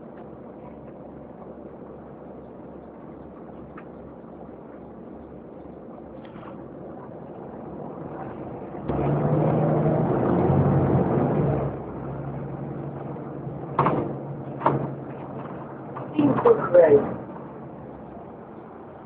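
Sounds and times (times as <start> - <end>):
bus diesel engine: 0.0 - 19.0.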